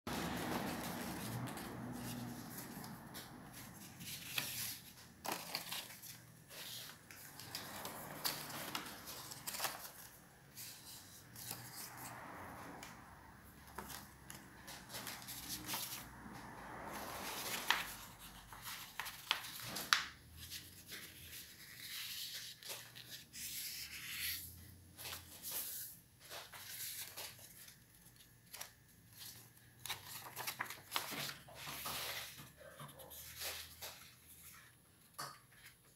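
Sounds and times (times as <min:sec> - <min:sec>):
paper rustling and crackling: 0:00.1 - 0:12.3, 0:13.6 - 0:16.1, 0:16.7 - 0:34.8.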